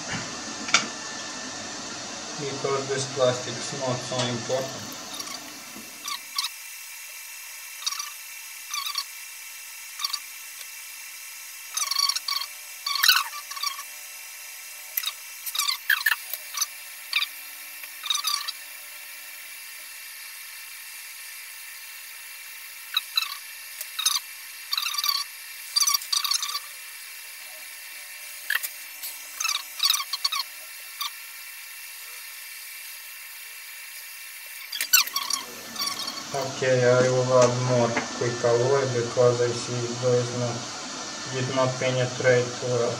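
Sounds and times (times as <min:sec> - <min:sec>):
hot-air gun blowing: 0:00.0 - 0:42.9
metal tool scraping circuit board: 0:28.4 - 0:30.5, 0:34.6 - 0:36.4.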